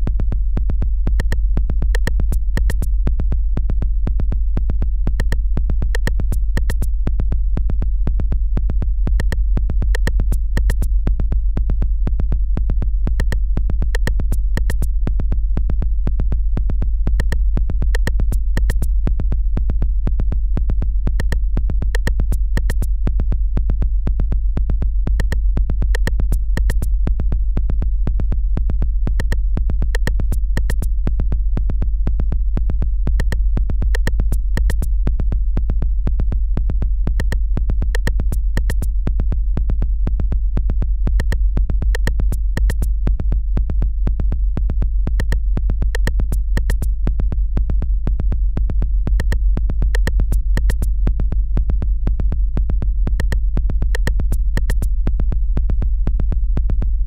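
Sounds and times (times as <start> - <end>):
deep synthesizer bass: 0.0 - 57.0
clicking drum machine beats: 1.2 - 2.9, 5.2 - 6.9, 9.2 - 10.9, 13.2 - 14.9, 17.2 - 18.9, 21.2 - 22.9, 25.2 - 26.9, 29.2 - 30.9, 33.2 - 34.9, 37.2 - 38.9, 41.2 - 42.9, 45.1 - 47.0, 49.2 - 51.0, 53.1 - 55.0.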